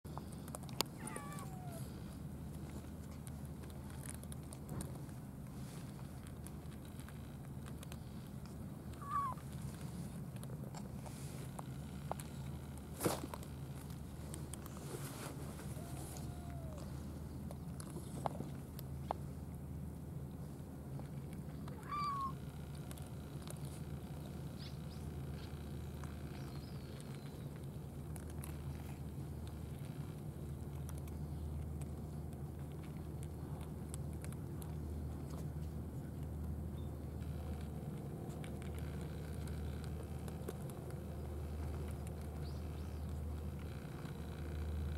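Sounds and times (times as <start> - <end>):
cats crunching food: 0.1 - 44.9
low background hum: 0.1 - 44.9
cat call: 1.0 - 1.9, 9.0 - 9.4, 15.7 - 16.9, 21.8 - 22.4.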